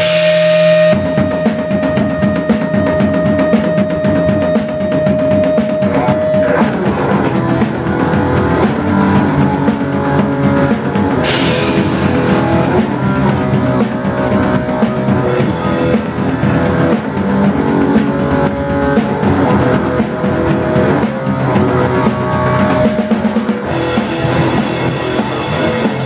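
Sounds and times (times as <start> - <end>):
cymbal crash: 0.0 - 1.9, 11.2 - 13.3
rock band playing live: 0.0 - 26.0.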